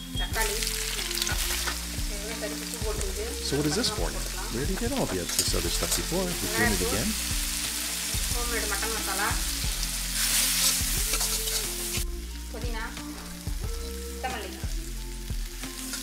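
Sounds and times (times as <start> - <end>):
meat frying and sizzling in wok: 0.0 - 16.0
steel spoon scraping wok: 8.9 - 12.0.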